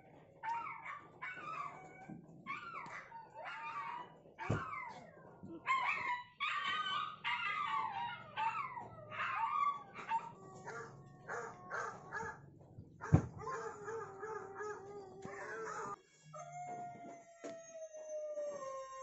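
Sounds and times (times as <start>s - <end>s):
dogs howling through phone speaker: 0.3s - 12.4s, 13.2s - 19.0s
dogs yelping: 0.4s - 16.0s.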